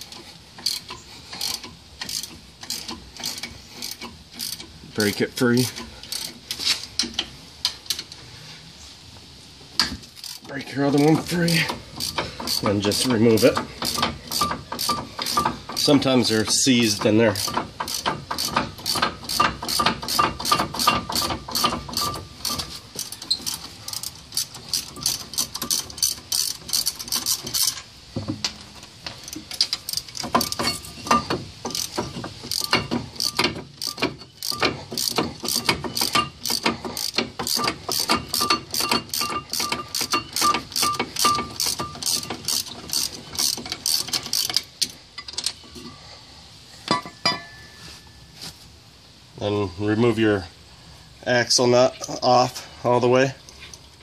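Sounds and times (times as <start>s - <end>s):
ratchet wrench clicking: 0.0s - 7.3s, 10.2s - 10.5s, 11.5s - 27.8s, 29.2s - 45.6s.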